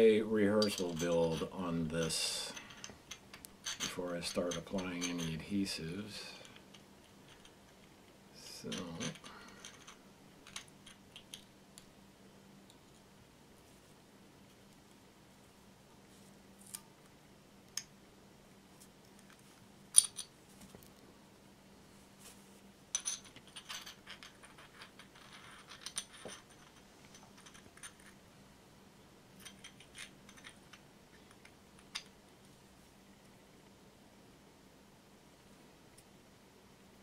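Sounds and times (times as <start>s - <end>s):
porcelain fragments clicking: 8.6s - 11.9s, 22.9s - 28.2s, 29.4s - 32.1s.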